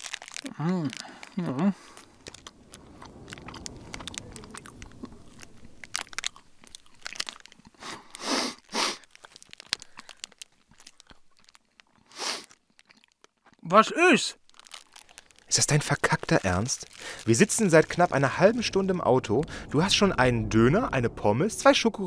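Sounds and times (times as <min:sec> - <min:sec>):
person chewing noisily: 0:00.0 - 0:13.7, 0:14.4 - 0:18.8.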